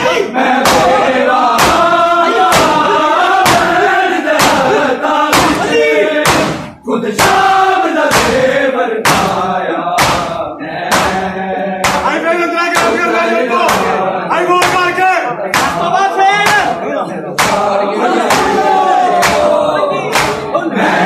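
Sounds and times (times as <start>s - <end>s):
men chanting a lament: 0.0s - 21.0s
hands slapping bare chests: 0.6s - 0.9s, 1.6s - 3.8s, 4.4s - 4.7s, 8.1s - 8.4s, 10.0s - 10.3s, 10.9s - 11.2s, 11.8s - 12.1s, 13.7s - 13.9s, 15.5s - 15.8s, 17.4s - 17.6s, 19.2s - 19.5s, 20.1s - 20.5s.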